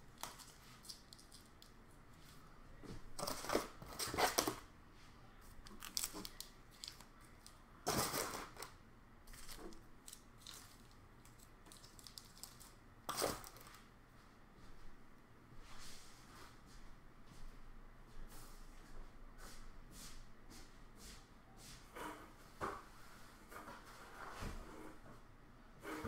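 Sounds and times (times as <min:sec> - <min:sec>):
packaging crinkling and rustling: 0:00.1 - 0:01.8, 0:03.2 - 0:04.6, 0:05.5 - 0:13.8.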